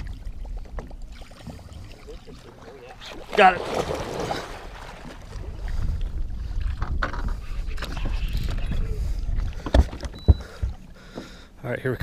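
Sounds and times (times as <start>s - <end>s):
wind buffeting microphone: 3.9s - 10.8s.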